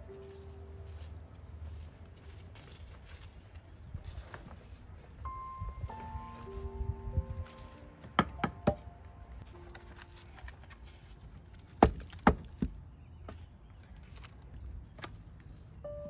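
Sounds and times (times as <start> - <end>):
firewood logs knocking together: 11.5 - 13.5.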